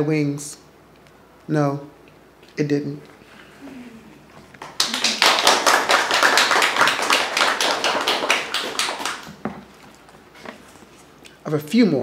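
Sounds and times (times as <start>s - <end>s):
audience applauding: 4.4s - 9.4s.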